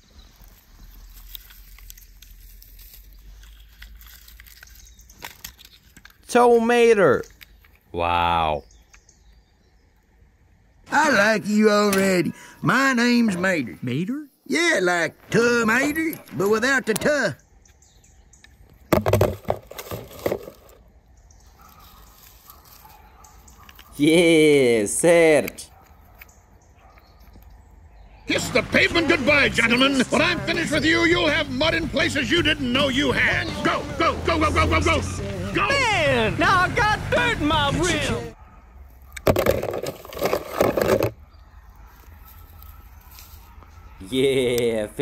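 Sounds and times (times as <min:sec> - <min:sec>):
pine needles and twigs rustling: 0:00.0 - 0:06.6, 0:19.2 - 0:24.3, 0:41.6 - 0:43.8.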